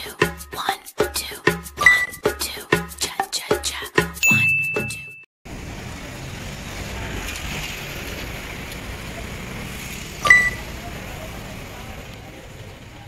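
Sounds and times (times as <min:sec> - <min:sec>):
sharp metallic clink: 0:04.2 - 0:05.2
traffic hum: 0:05.5 - 0:13.0.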